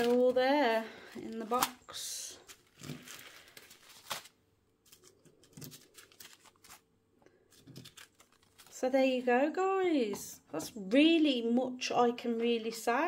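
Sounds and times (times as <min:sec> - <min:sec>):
plastic bags crinkling: 0:00.0 - 0:08.9.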